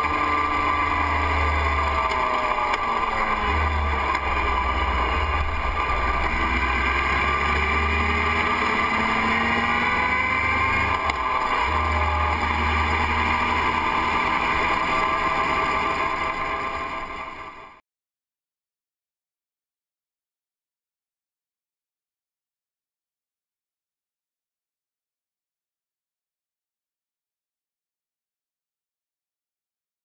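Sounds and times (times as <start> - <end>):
motorcycle engine running: 0.0 - 17.8.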